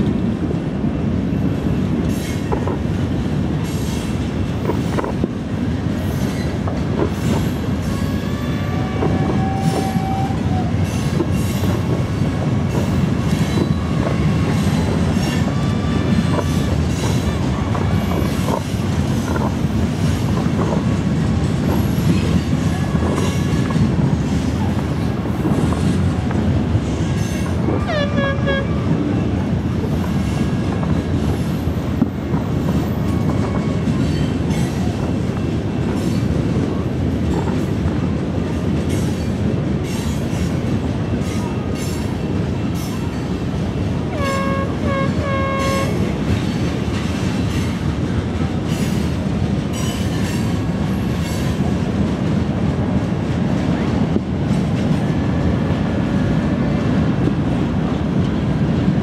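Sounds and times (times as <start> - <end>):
horn honks: 27.9 - 28.8, 44.2 - 46.0.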